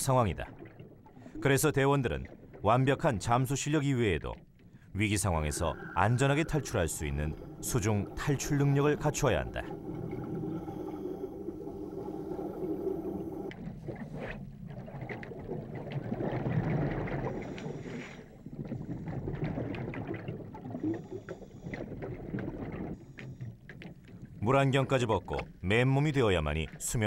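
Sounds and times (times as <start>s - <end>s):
underwater air bubbles gurgling: 0.0s - 27.0s
steady hum: 4.9s - 13.6s.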